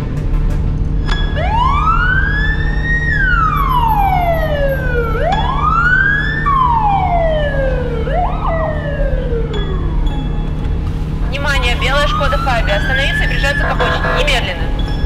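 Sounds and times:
police siren wailing: 0:01.3 - 0:15.0
short siren blip: 0:13.8 - 0:14.6.

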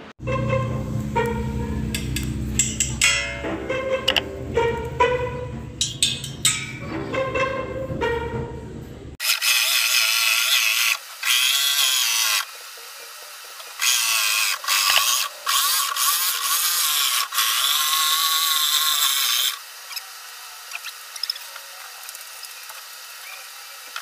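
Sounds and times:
jigsaw cutting plywood: 0:09.2 - 0:24.0.

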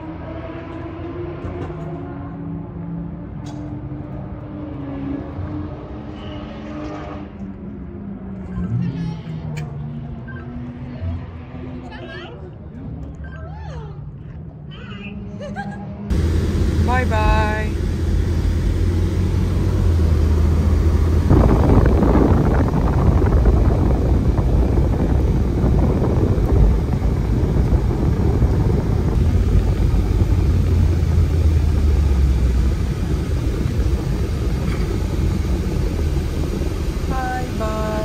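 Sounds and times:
car engine drone inside cabin: 0:16.1 - 0:38.0.

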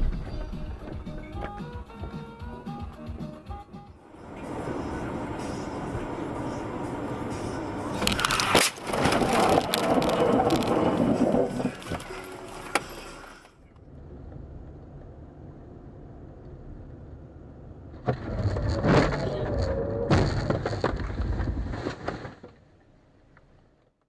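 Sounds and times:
car engine and road rumble: 0:00.0 - 0:24.0
car collision bangs and clatter: 0:20.0 - 0:22.7.

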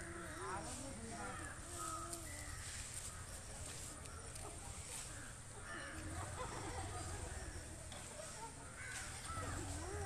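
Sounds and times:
distant people's voices: 0:00.0 - 0:10.0.

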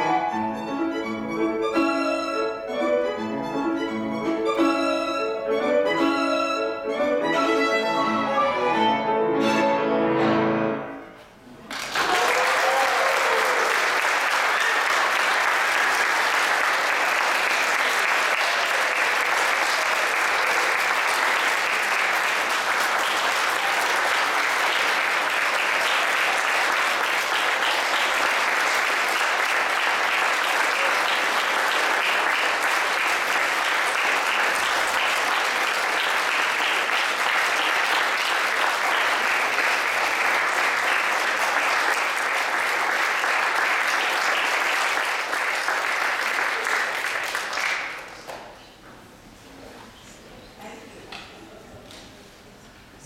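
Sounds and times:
crowd applauding: 0:11.7 - 0:48.6.

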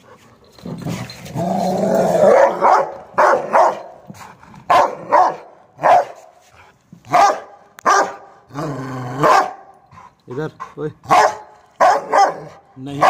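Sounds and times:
dog barking: 0:02.3 - 0:03.9, 0:04.7 - 0:06.3, 0:07.1 - 0:08.4, 0:09.2 - 0:09.7, 0:11.1 - 0:13.0.

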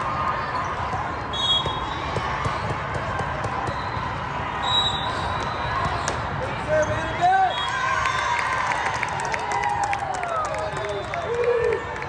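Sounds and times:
volleyballs being hit and bounced: 0:00.0 - 0:04.4, 0:05.1 - 0:07.1
crowd chatter: 0:00.0 - 0:07.6.

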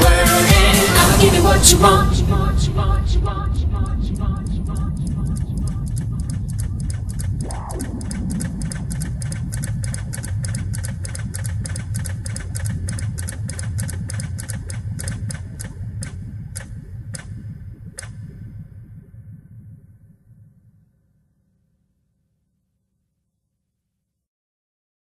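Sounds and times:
low bass pulse: 0:01.0 - 0:21.0
clock ticking effect: 0:03.7 - 0:18.9.

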